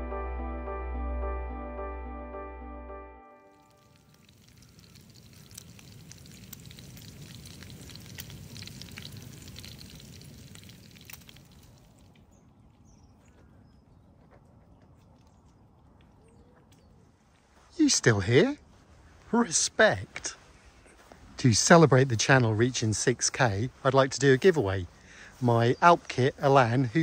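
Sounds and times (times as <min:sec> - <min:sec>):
food sizzling in a frying pan: 0:03.6 - 0:11.7.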